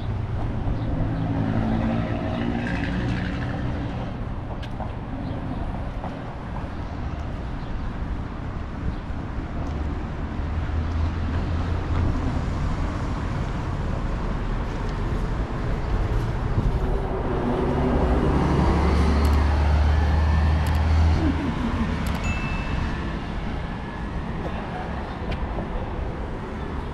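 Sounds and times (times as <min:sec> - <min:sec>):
rumble of passing vehicles: 0:00.0 - 0:26.9
vehicle engine: 0:13.6 - 0:25.3.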